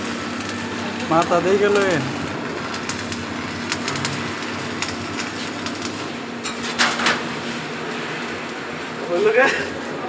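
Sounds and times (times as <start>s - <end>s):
welding arc crackling and sizzling: 0.0s - 10.0s.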